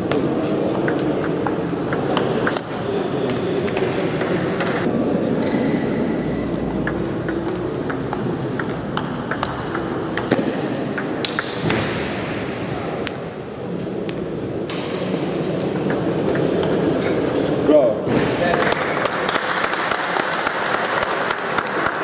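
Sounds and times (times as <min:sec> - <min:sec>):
background noise: 0:00.0 - 0:22.0
table tennis ball clicking: 0:06.6 - 0:11.6, 0:15.6 - 0:17.0.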